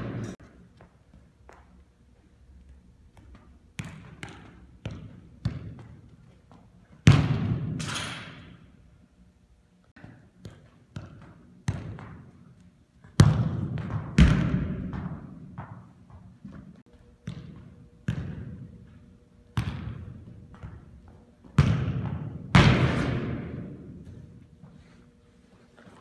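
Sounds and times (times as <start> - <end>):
loud ball thuds echoing: 21.6 - 23.8.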